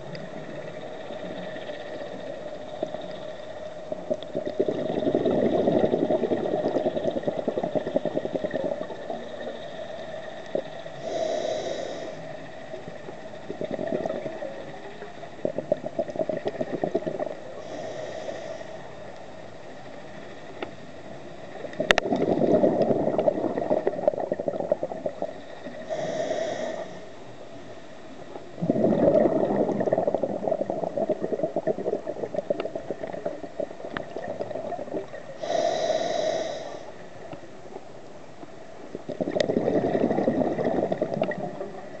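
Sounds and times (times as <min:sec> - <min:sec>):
exhaled bubbles underwater: 0:00.0 - 0:18.4, 0:21.4 - 0:27.0, 0:28.5 - 0:37.4, 0:38.8 - 0:42.0
regulator inhalation hiss: 0:09.4 - 0:12.8, 0:17.6 - 0:19.0, 0:25.6 - 0:27.2, 0:35.4 - 0:37.0.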